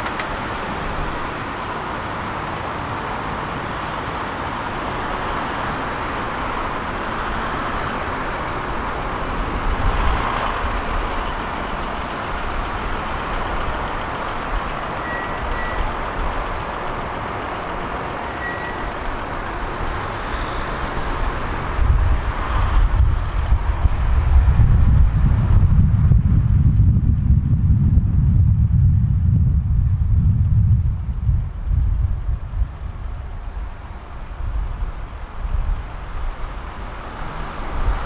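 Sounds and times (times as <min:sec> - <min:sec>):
loud vehicle passing: 0:00.0 - 0:14.1
cars passing: 0:00.0 - 0:26.6, 0:30.9 - 0:38.0
wind buffeting microphone: 0:21.2 - 0:38.0.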